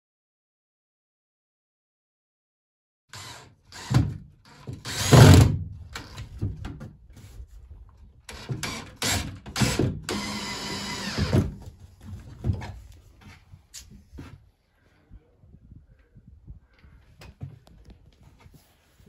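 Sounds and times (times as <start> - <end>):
cordless drill driving screws: 3.1 - 6.2, 8.3 - 11.6.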